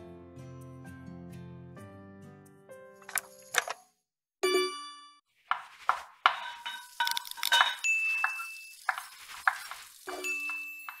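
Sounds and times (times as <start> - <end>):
sharp ringing clinks and taps: 6.5 - 8.8.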